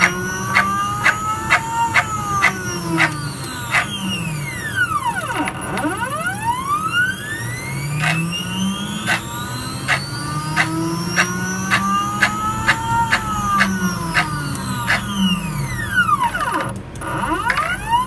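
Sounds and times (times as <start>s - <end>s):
sharp clicks: 0.0s - 4.1s, 8.0s - 8.2s, 9.0s - 15.2s
stepper motors whining: 0.0s - 18.0s.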